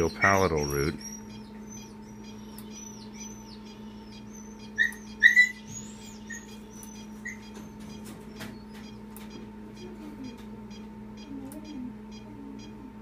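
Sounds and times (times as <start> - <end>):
steady low hum: 0.0 - 13.0
dog whining: 0.4 - 8.8.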